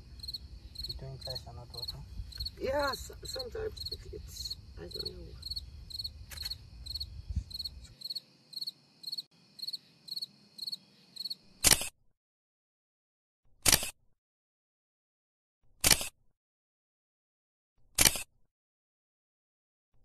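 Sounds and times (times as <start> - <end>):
crickets chirping: 0.0 - 11.6.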